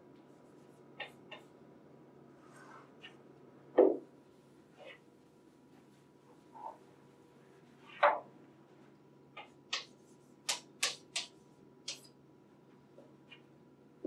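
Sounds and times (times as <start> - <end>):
chalk writing on chalkboard: 9.4 - 12.0.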